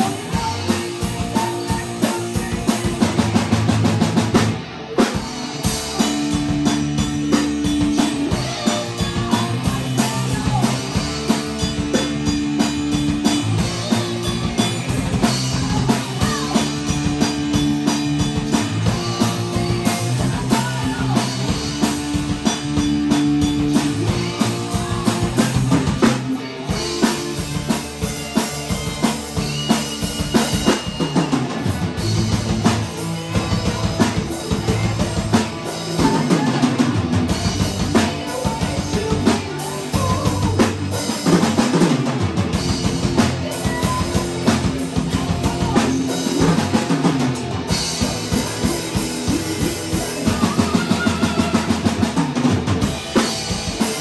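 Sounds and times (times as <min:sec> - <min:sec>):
drum kit beat: 0:00.0 - 0:54.0
rock band playing: 0:00.0 - 0:54.0.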